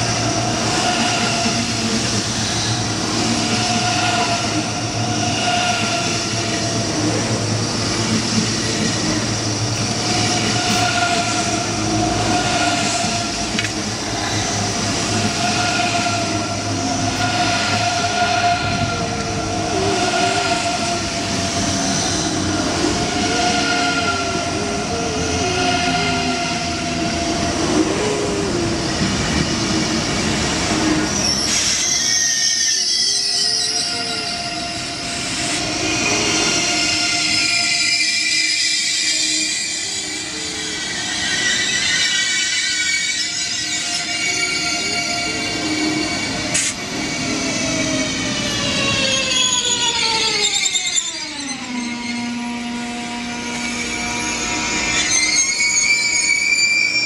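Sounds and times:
electric train traction whine: 0.0 - 57.0
train wheels rumbling: 0.0 - 57.0
wavering squeal of running gear: 31.1 - 57.0.

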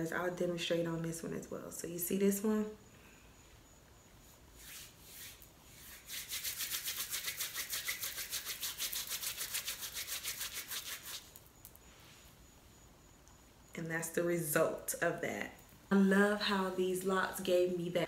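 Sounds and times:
palms rubbing hair: 4.5 - 11.4.

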